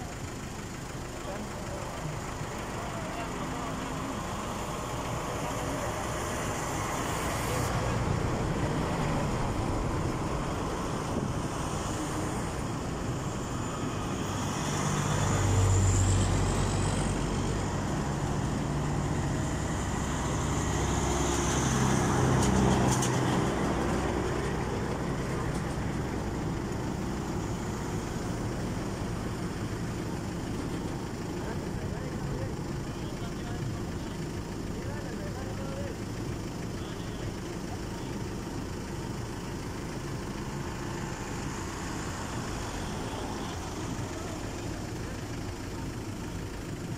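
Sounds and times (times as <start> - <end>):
road traffic rush: 0.0 - 46.9
vehicle passing close: 2.6 - 30.8.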